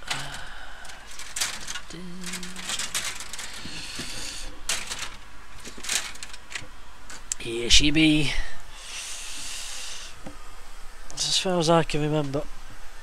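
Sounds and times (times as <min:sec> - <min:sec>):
boards and parts clattering: 0:00.0 - 0:07.3
rustling: 0:00.0 - 0:07.4.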